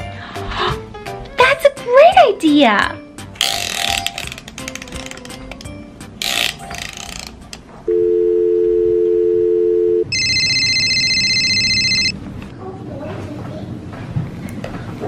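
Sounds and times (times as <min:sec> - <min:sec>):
two-tone dial tone: 0:07.9 - 0:12.1
warbling electronic phone ring: 0:07.9 - 0:12.2.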